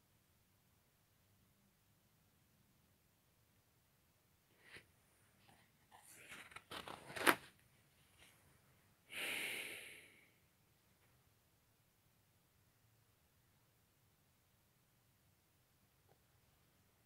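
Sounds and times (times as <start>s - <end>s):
paper pages rustling: 5.4s - 8.4s.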